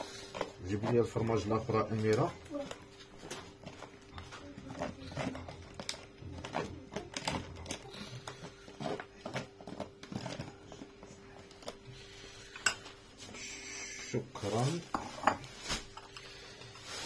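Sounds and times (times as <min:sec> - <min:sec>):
plastic bag crinkling: 0:00.1 - 0:10.8, 0:14.4 - 0:17.0.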